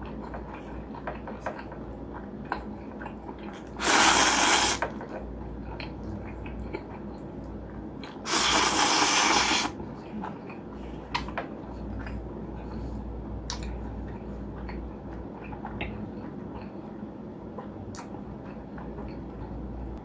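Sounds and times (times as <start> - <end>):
soft chewing: 0.0 - 3.8, 4.9 - 8.6, 9.8 - 20.0
person slurping noodles: 3.7 - 4.8, 8.3 - 9.8.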